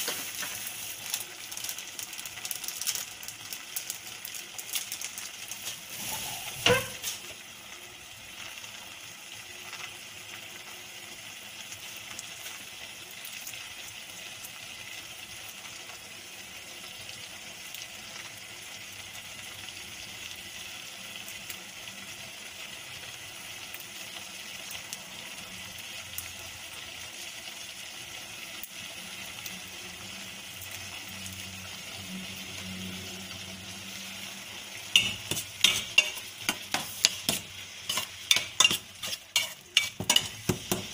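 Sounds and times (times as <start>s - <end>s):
milk solids sizzling in a pan: 0.0s - 40.9s
spoon scraping a pan: 5.6s - 7.4s, 34.8s - 40.9s
spoon knocking against pan: 35.0s - 40.9s.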